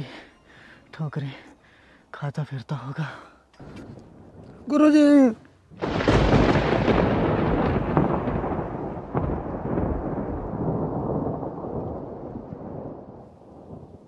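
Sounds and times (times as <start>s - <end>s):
rolling thunder with cracks: 5.7s - 14.0s.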